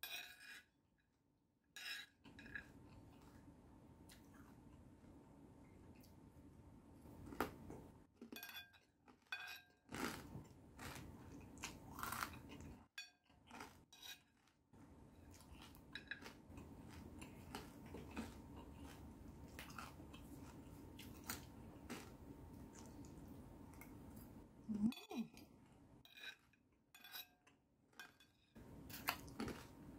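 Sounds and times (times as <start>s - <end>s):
metal spoon scraping a plate: 0.0s - 0.8s, 1.8s - 2.8s, 8.4s - 9.8s, 13.9s - 14.4s, 26.0s - 27.4s
chewing and crunching: 9.1s - 24.4s, 28.9s - 29.9s.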